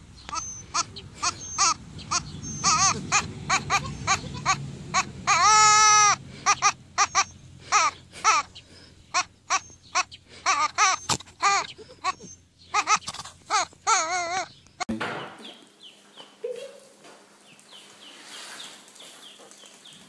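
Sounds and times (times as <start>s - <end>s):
goat kid bleating: 0.3s - 14.6s.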